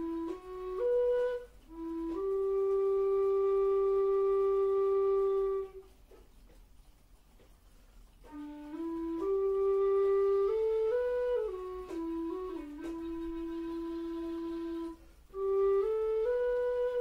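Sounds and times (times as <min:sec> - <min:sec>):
low whistle playing slow melody: 0:00.0 - 0:05.8, 0:08.3 - 0:17.0
breath: 0:15.0 - 0:15.4.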